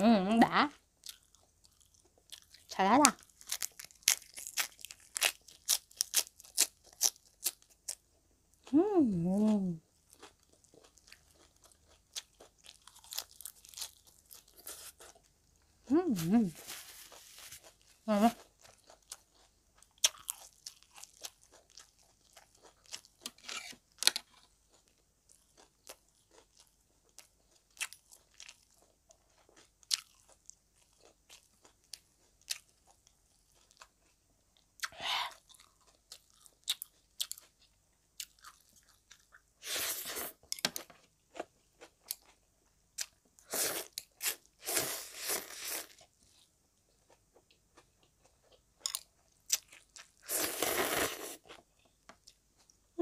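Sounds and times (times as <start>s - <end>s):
chewing and crunching fried food: 0.5s - 53.0s
slurping noodles: 50.2s - 51.4s.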